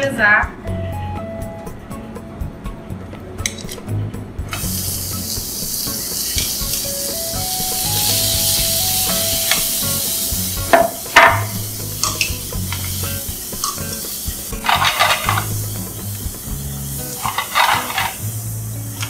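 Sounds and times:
shrimp sizzling in oil: 4.6 - 19.0
metal tongs knocking on pan: 10.7 - 12.9.

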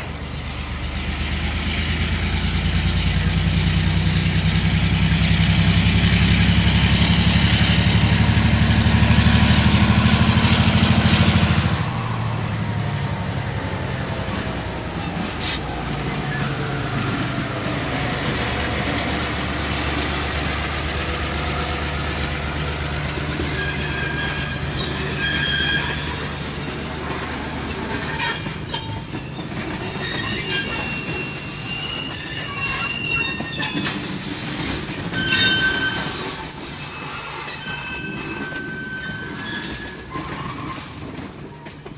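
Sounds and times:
deep diesel engine rumble: 0.0 - 25.2
train rail clatter: 0.0 - 41.9
squealing tones: 27.9 - 34.0.

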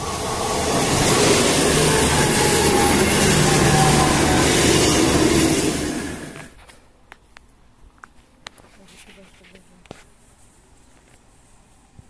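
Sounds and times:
train passing close by: 0.0 - 6.6.

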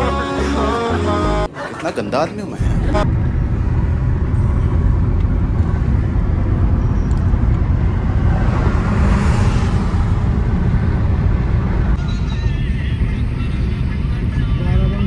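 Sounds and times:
car road noise rumble: 2.6 - 15.0
rushing noise: 2.6 - 15.0.

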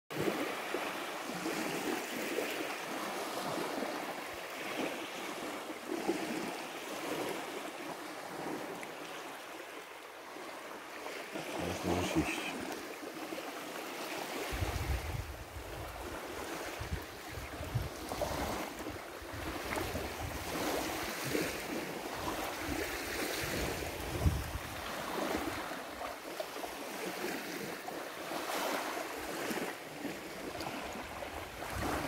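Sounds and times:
small waves lapping on sand: 0.1 - 32.0
wind gusting on microphone: 14.4 - 20.9, 23.4 - 25.6.

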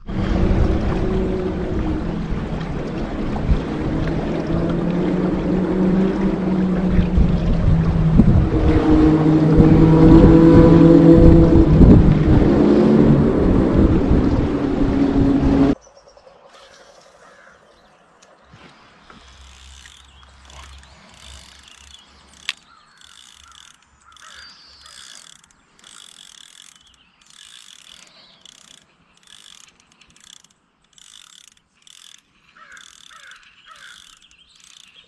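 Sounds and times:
fishing reel gears whirring: 19.1 - 35.0.

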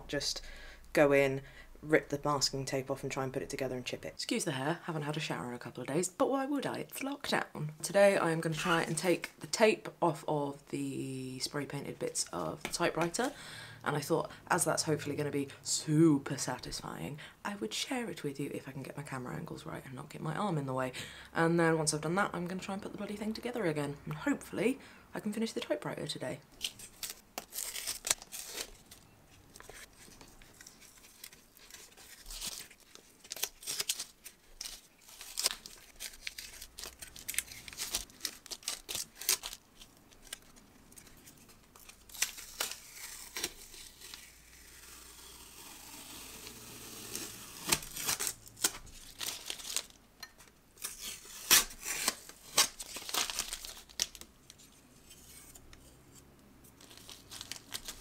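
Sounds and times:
tape ripping off: 26.6 - 29.0, 41.7 - 50.0, 50.8 - 54.3
tape crinkling: 26.6 - 50.1, 50.8 - 55.6, 56.7 - 58.0.

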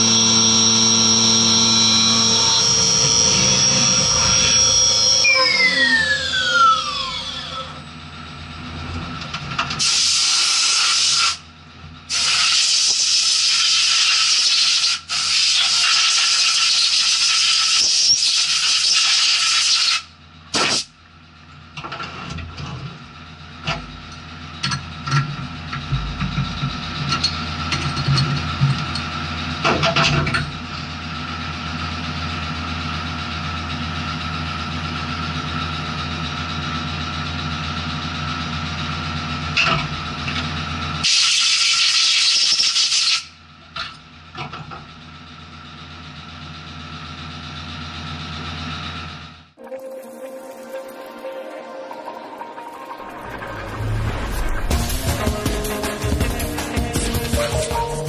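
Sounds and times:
machine hum: 0.0 - 9.3, 49.6 - 58.0
spindle winding down whine: 0.0 - 9.3, 49.6 - 58.0.

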